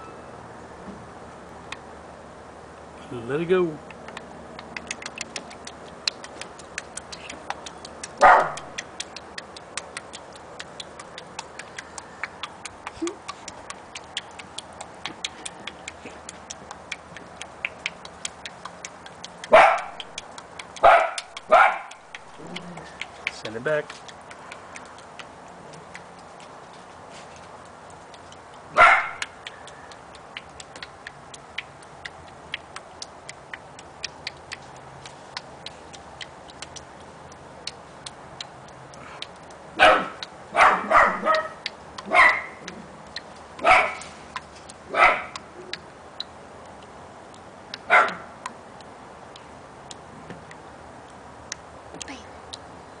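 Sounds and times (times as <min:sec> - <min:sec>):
faint irregular ticks: 0:03.5 - 0:53.0
dog barking: 0:08.2 - 0:08.7, 0:19.5 - 0:20.0, 0:20.8 - 0:22.0, 0:28.8 - 0:29.3, 0:39.8 - 0:42.6, 0:43.6 - 0:44.1, 0:44.9 - 0:45.4, 0:47.9 - 0:48.3.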